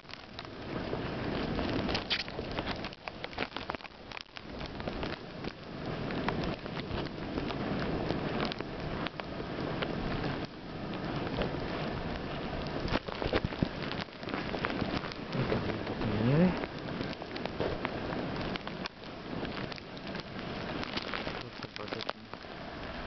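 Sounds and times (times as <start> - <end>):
footsteps crunching in snow: 10.9 - 22.3.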